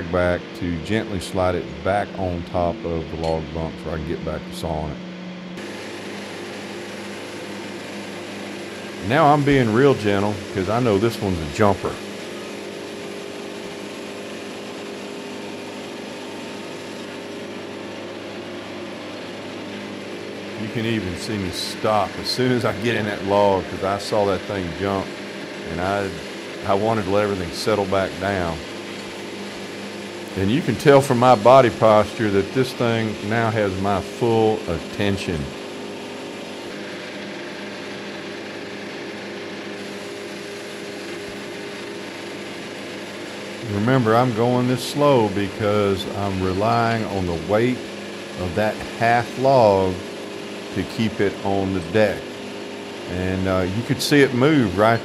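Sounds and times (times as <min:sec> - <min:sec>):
band saw cutting log: 0:00.0 - 0:05.0, 0:05.6 - 0:55.0
diesel engine running: 0:00.0 - 0:13.9, 0:18.6 - 0:36.9, 0:39.8 - 0:50.0.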